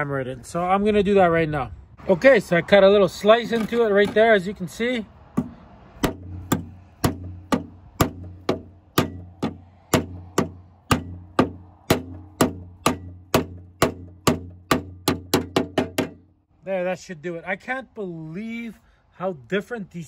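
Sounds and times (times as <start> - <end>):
hammer striking plastic housing: 5.4 - 16.3.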